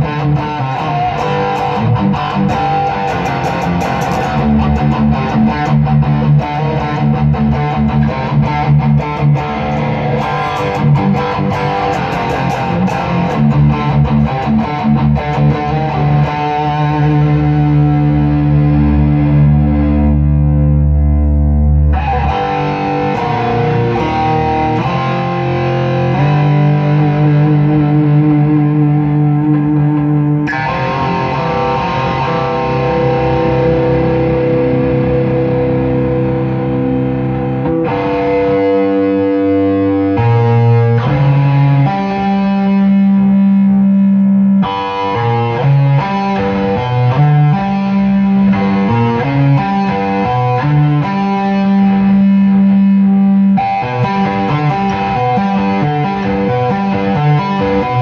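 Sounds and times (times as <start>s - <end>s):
electric guitar chords: 0.0s - 58.0s.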